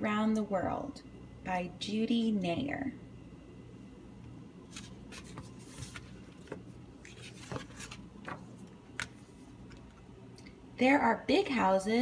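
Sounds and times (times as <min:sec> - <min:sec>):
book pages rustling: 0:04.7 - 0:10.0.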